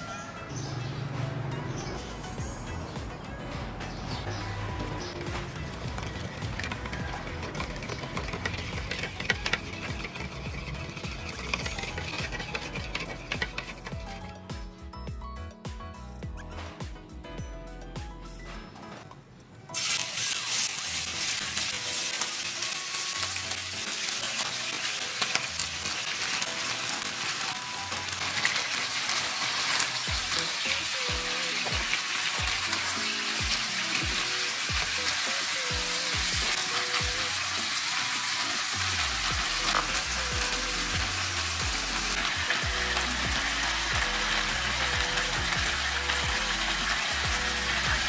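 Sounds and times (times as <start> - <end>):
chicken sizzling in oil: 5.0 - 13.9, 19.8 - 48.0.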